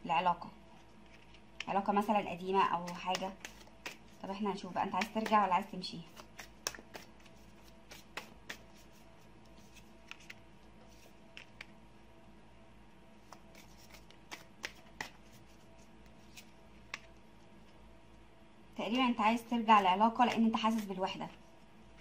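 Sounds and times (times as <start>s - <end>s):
cards being shuffled: 2.8s - 4.2s, 6.1s - 11.7s, 13.3s - 17.1s.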